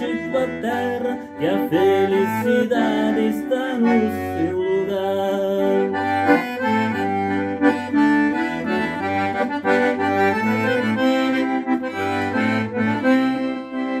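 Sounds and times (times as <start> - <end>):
accordion melody: 0.0 - 14.0
low bass notes: 5.8 - 14.0.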